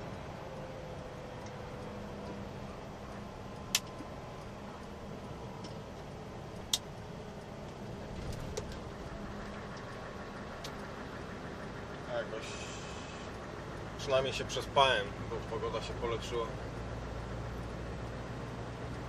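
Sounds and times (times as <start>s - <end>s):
faint steady tones: 0.0s - 19.0s
truck engine and road noise: 0.0s - 19.0s.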